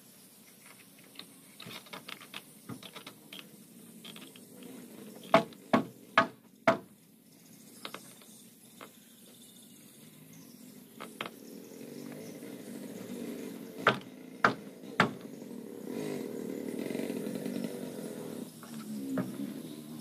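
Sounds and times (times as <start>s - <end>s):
sharp knocks on wooden planks: 5.3s - 6.9s, 13.8s - 15.3s.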